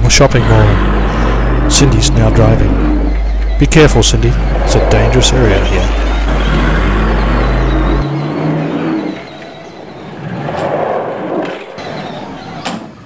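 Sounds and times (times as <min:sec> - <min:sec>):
steady low hum: 0:00.0 - 0:08.2
car engine revving: 0:00.0 - 0:12.1
rough swell of noise: 0:04.0 - 0:08.0.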